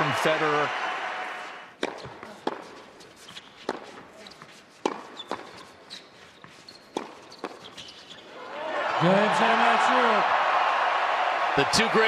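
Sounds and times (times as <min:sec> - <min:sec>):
tennis racquets hitting ball: 0:01.7 - 0:08.0
ball bouncing on hard court: 0:01.8 - 0:05.7, 0:06.8 - 0:08.2
sneakers squeaking: 0:01.8 - 0:09.0.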